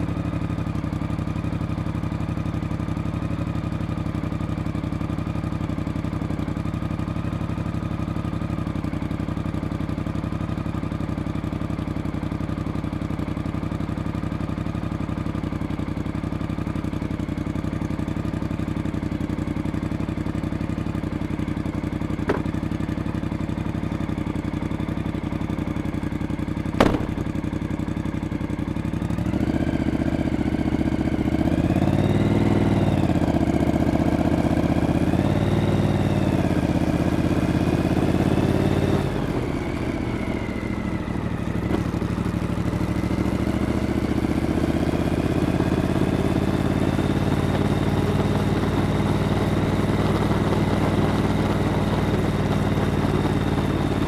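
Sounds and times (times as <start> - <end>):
motorcycle engine revving: 21.6 - 23.4, 26.8 - 27.8, 29.0 - 54.0
sharp click: 26.8 - 27.3.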